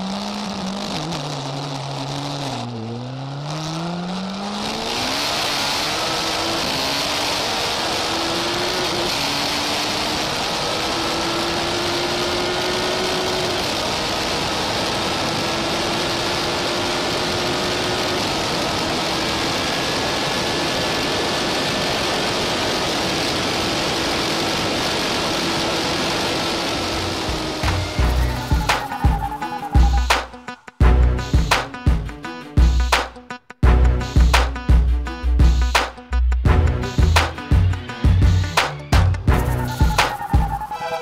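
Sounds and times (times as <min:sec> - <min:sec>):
car engine accelerating: 0:00.0 - 0:31.7, 0:36.5 - 0:41.0
wind and road noise: 0:00.0 - 0:32.1.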